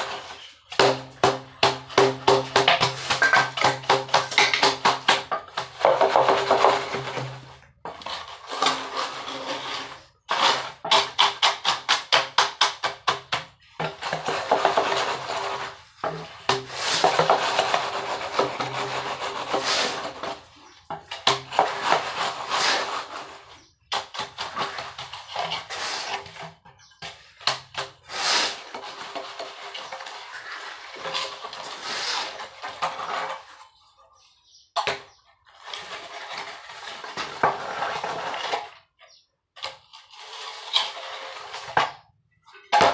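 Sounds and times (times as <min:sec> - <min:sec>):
straightedge scraping wet concrete: 0:00.0 - 0:34.2, 0:35.0 - 0:42.9.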